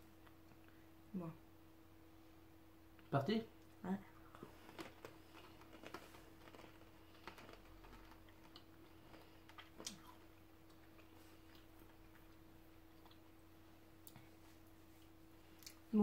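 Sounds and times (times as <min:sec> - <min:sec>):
faint steady hum: 0:00.0 - 0:16.0
pretzels being chewed: 0:04.2 - 0:14.4.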